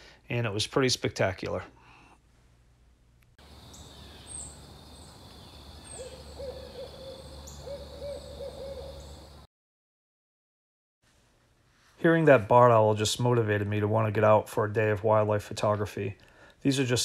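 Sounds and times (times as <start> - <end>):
owl hooting: 3.5 - 9.4.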